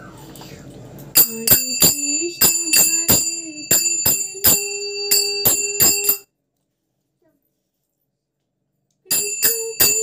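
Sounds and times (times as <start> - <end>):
hand bell ringing: 1.2 - 6.3, 9.1 - 10.0.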